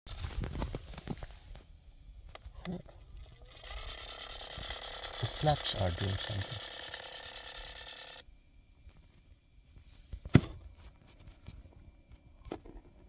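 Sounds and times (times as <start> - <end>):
actuator motors whirring: 2.6 - 8.2.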